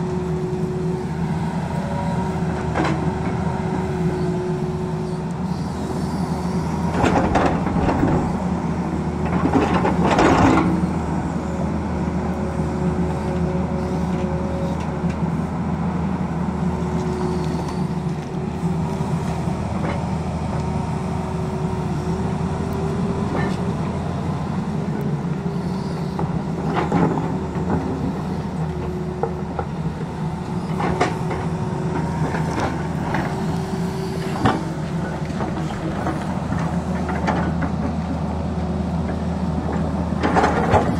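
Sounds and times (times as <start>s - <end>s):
hydraulic whine: 0.0s - 8.6s, 16.8s - 38.2s
excavator engine and hydraulics: 0.0s - 40.9s.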